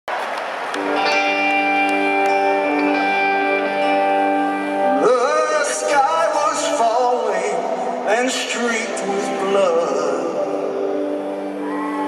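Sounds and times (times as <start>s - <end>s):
man singing: 4.9s - 11.2s.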